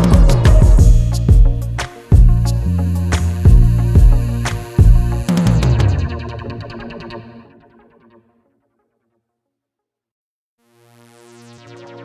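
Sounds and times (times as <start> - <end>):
sustained electronic notes: 0.0 - 8.2
background music: 0.0 - 8.3.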